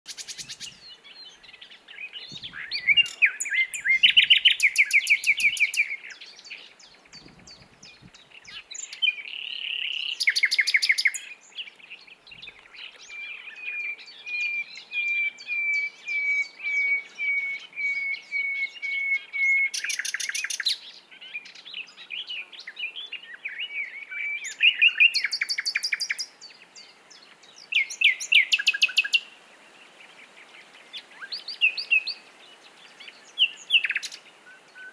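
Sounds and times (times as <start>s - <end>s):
nightingale singing: 0.1s - 34.9s.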